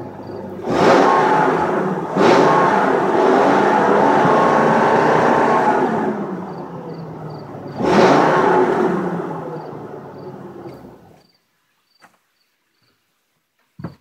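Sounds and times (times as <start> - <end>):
truck engine exhaust revving: 0.0 - 11.2.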